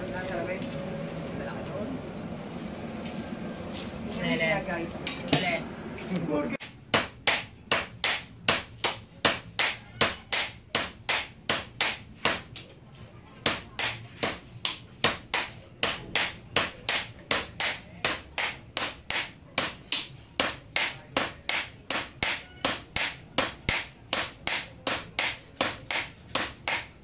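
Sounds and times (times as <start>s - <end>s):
hammers ringing on anvil: 6.9s - 12.6s, 13.4s - 27.0s.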